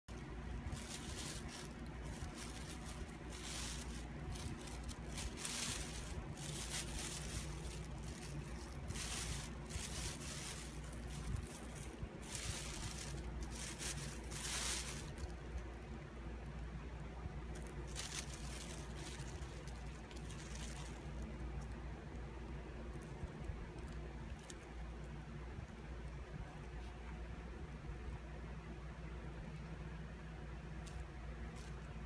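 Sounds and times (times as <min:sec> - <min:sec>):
steady low hum: 0:00.0 - 0:32.0
plastic bag rustling: 0:00.1 - 0:15.8, 0:17.5 - 0:21.4, 0:30.8 - 0:32.0.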